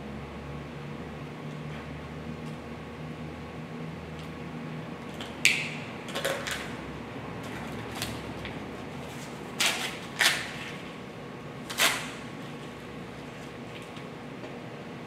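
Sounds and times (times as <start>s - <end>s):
packing tape tearing: 9.6s - 10.8s, 11.7s - 12.2s.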